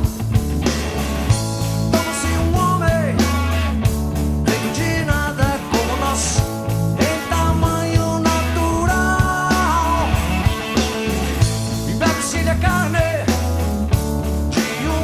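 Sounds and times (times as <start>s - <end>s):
bass guitar: 0.0s - 15.0s
drum kit with cymbals: 0.0s - 15.0s
electric guitar: 0.0s - 15.0s
sliding guitar notes: 0.7s - 12.8s.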